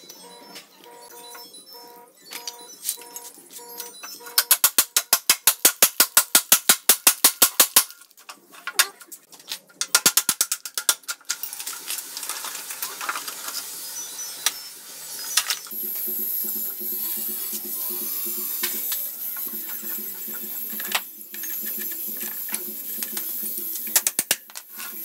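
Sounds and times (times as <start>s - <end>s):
metal parts scraping and handling: 7.9s - 15.8s, 18.5s - 25.0s
ratchet wrench clicking: 15.7s - 25.0s.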